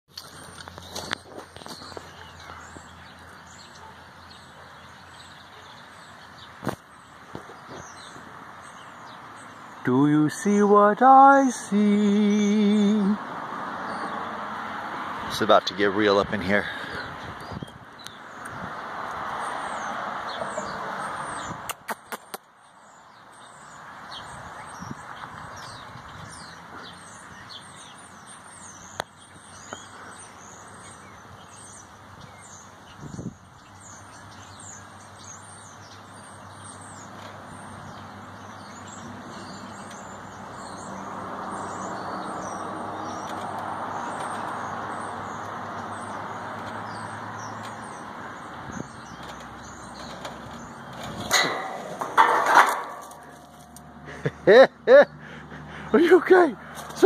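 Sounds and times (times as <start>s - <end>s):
small birds chirping: 0.1s - 57.0s
sharp clicks: 21.7s - 22.5s.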